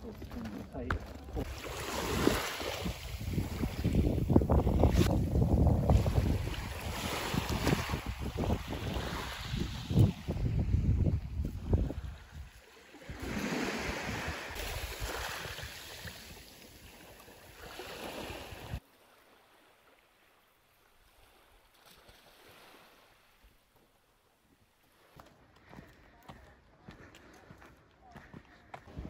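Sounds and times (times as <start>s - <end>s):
small waves washing onto beach: 1.2s - 23.7s
wind buffeting microphone: 1.3s - 16.4s.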